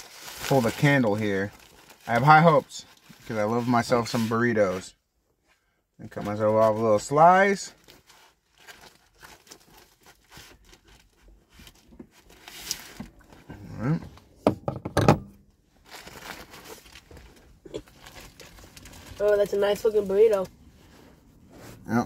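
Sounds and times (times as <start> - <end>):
food wrapper crinkling and tearing: 7.8 - 13.4, 15.8 - 20.0.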